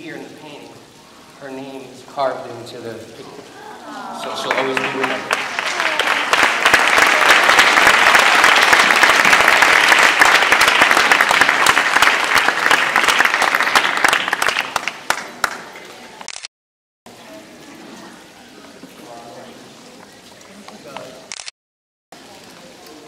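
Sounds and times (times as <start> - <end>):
room noise: 0.0 - 16.4
audience applauding: 4.1 - 16.0.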